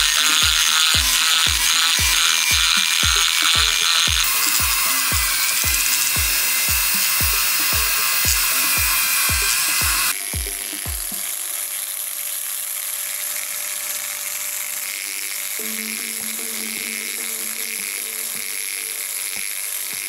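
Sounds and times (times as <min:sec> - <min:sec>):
rotary tool whining: 0:00.0 - 0:20.0
soft background music: 0:15.6 - 0:20.0.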